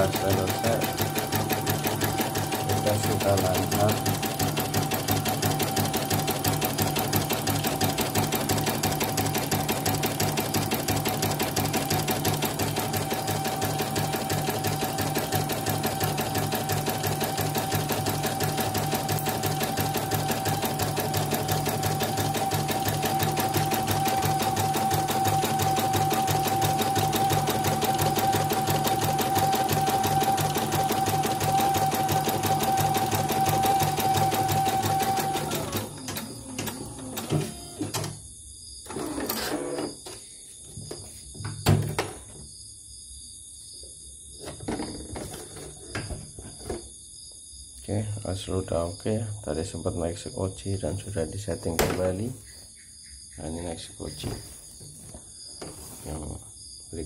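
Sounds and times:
embroidery machine stitching: 0:00.0 - 0:38.2, 0:38.9 - 0:40.0.

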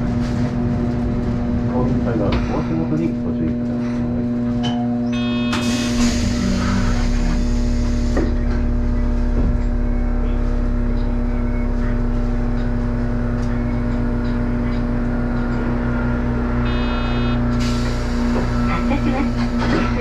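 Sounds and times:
tram electrical hum: 0:00.0 - 0:20.0
short electronic beep: 0:05.0 - 0:05.8, 0:16.6 - 0:17.4
low rumble: 0:05.8 - 0:20.0.

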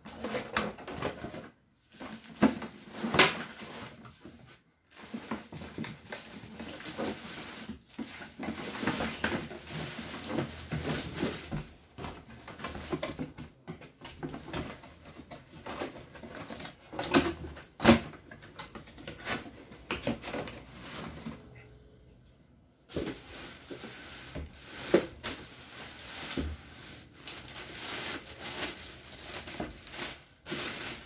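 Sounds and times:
cardboard and plastic bag rustling: 0:00.0 - 0:21.6, 0:22.8 - 0:31.0.

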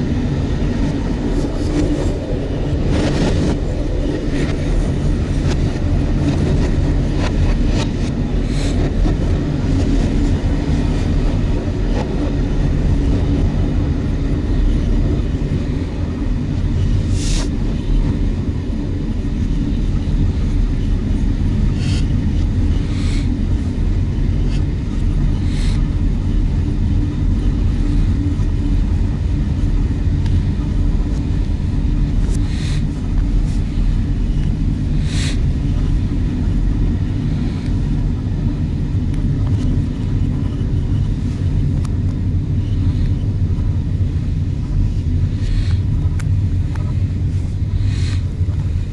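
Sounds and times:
train rumbling: 0:00.0 - 0:48.9.

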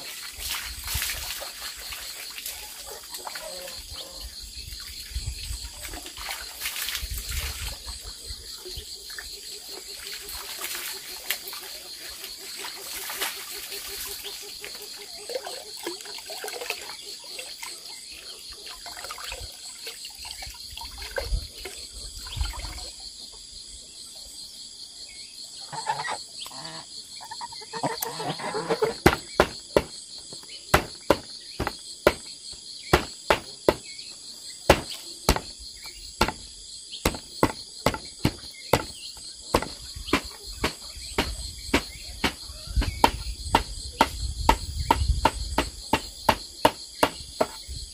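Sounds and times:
insects chorus: 0:00.0 - 0:47.9
cleaver chopping greens: 0:28.7 - 0:32.3, 0:32.9 - 0:33.9, 0:34.7 - 0:35.6, 0:36.2 - 0:47.6.

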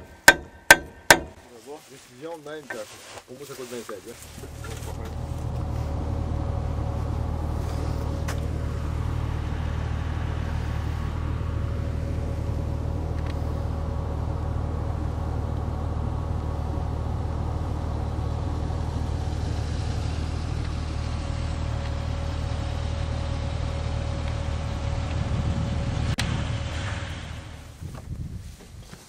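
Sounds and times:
engine idling: 0:00.0 - 0:01.6, 0:03.8 - 0:28.0.

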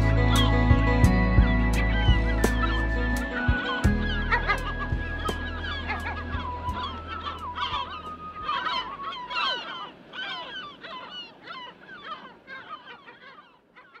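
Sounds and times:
music: 0:00.0 - 0:09.2
flock of birds honking: 0:01.5 - 0:14.0.

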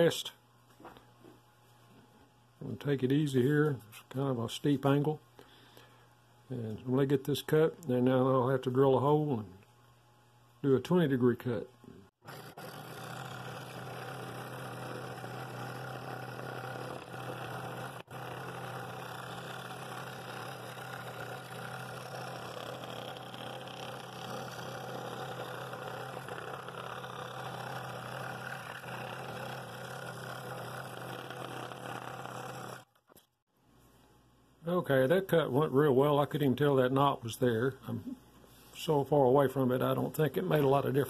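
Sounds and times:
scroll saw cutting wood: 0:12.2 - 0:33.3.

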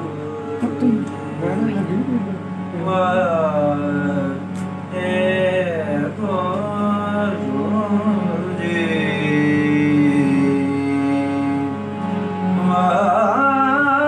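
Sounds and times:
steady drone: 0:00.0 - 0:14.0
man singing devotional song: 0:02.8 - 0:11.7, 0:12.5 - 0:14.0.

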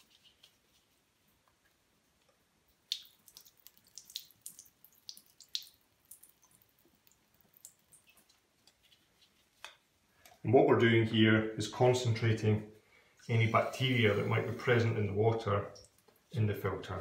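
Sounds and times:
water dripping into a sink: 0:02.2 - 0:08.8, 0:15.4 - 0:16.4.

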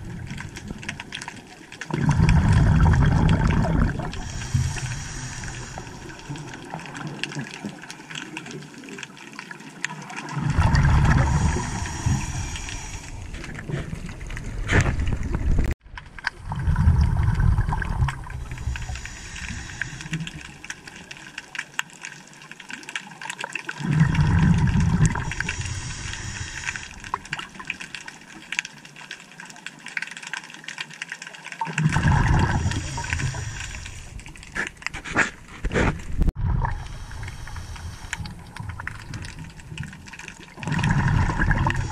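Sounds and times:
underwater wash: 0:00.0 - 0:41.9
diver exhaling bubbles: 0:01.9 - 0:07.7, 0:10.2 - 0:15.7, 0:16.3 - 0:21.0, 0:23.8 - 0:27.7, 0:31.7 - 0:34.6, 0:35.2 - 0:41.9.

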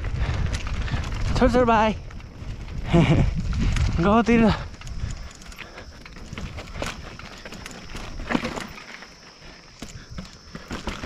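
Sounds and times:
wind rumble on microphone: 0:00.0 - 0:08.3
footsteps on dirt and stone: 0:03.4 - 0:11.0.

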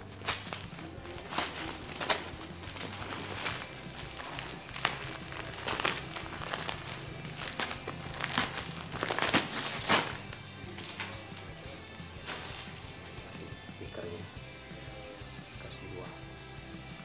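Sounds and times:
plastic package crinkling: 0:00.0 - 0:13.0
background music: 0:00.0 - 0:17.0.

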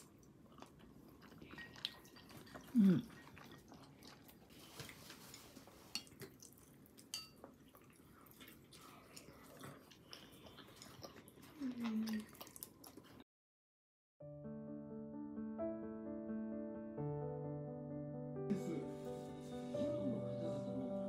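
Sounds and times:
person humming in enjoyment: 0:02.7 - 0:03.1, 0:18.5 - 0:19.0.

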